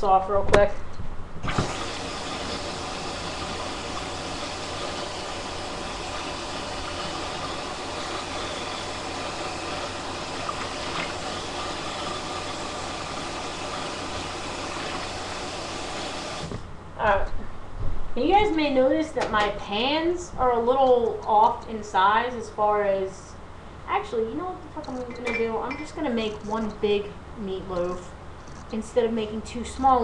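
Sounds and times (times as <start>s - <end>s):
kitchen faucet running: 1.4s - 16.6s, 24.8s - 26.8s.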